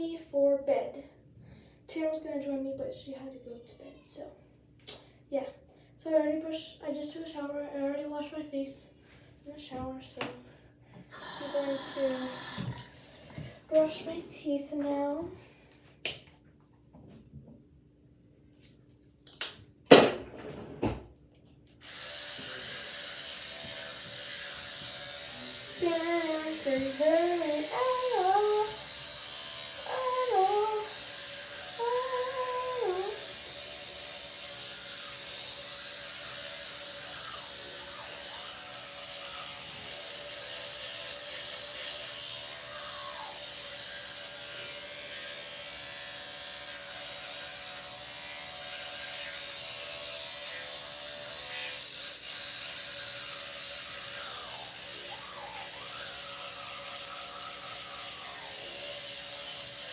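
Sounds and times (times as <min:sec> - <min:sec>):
electric toothbrush humming: 0:11.0 - 0:15.3, 0:21.8 - 0:59.9.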